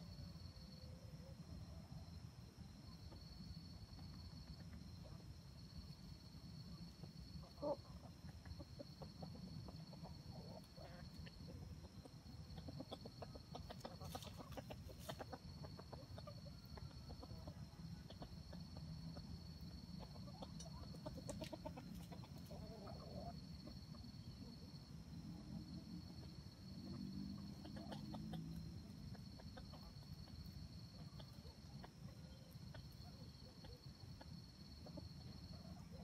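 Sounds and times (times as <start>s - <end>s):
junglefowl clucking: 6.8s - 24.7s, 26.8s - 36.0s.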